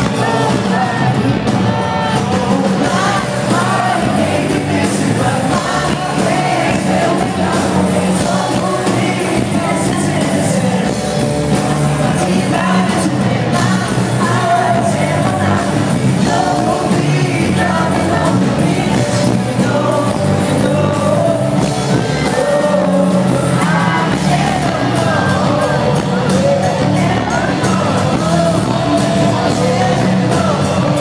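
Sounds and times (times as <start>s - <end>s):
lead singer singing: 0.0s - 31.0s
live pop-rock band: 0.0s - 31.0s.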